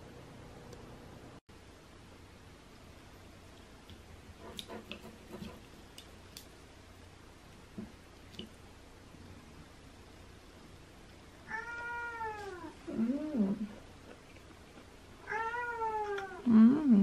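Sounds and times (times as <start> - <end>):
cat meowing: 11.5 - 12.8, 15.2 - 16.4.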